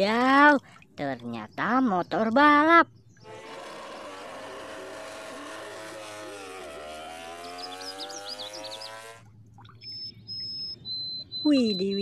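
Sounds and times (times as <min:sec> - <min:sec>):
racing motorcycle engine: 0:03.3 - 0:09.3.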